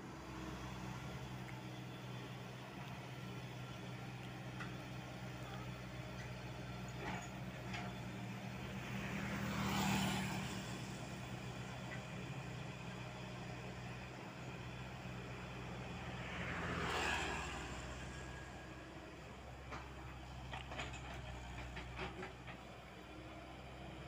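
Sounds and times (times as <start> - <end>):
excavator diesel engine droning: 0.0 - 24.0
road vehicles passing: 0.0 - 24.0
motorcycle passing: 8.8 - 11.0, 16.0 - 18.4.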